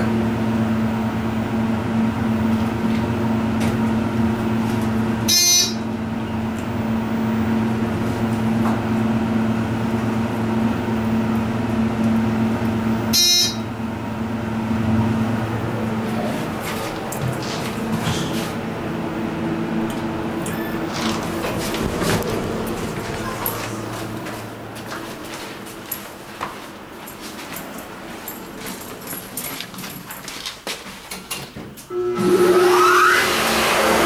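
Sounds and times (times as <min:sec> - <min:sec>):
elevator humming: 0:00.0 - 0:34.0
electronic chime tones: 0:13.2 - 0:13.7.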